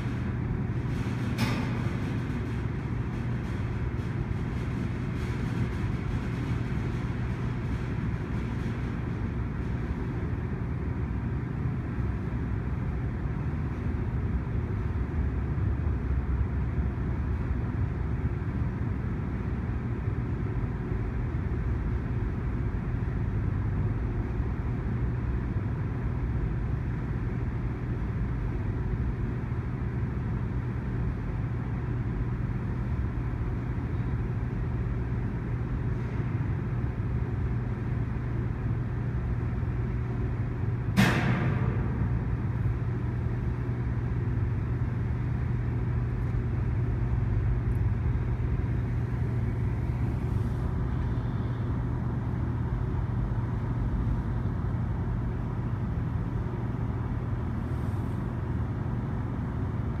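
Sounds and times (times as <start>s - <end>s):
low hum: 0.0s - 60.0s
sharp metallic clank: 41.0s - 42.2s.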